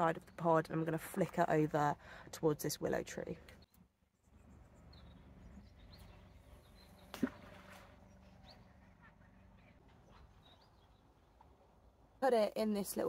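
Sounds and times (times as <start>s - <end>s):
bag plopping into water: 7.1s - 7.7s.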